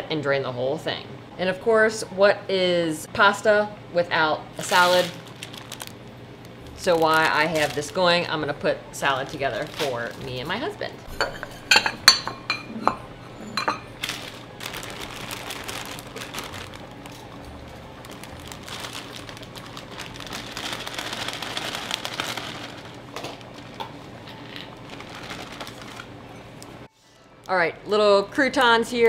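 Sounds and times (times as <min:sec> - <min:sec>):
plastic bag rustling: 0:04.6 - 0:12.2, 0:13.1 - 0:26.8
ceramic bowls clinking: 0:11.1 - 0:14.1.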